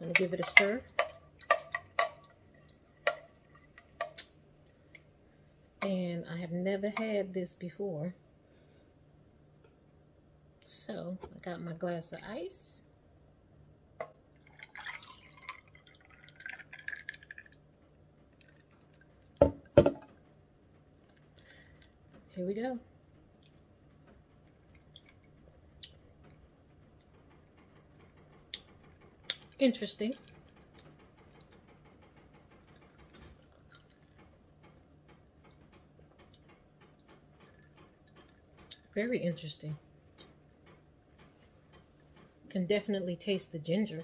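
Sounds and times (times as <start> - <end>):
low steady hum: 0.0 - 44.0
juice pouring over ice: 14.3 - 17.6.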